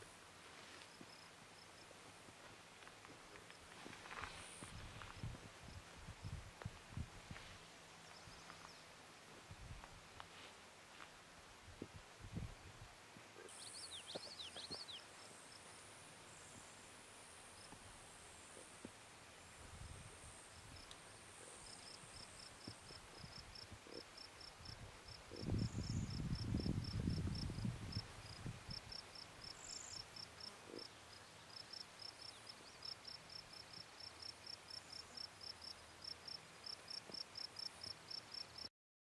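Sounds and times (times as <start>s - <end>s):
insect chirping: 19.8s - 38.7s.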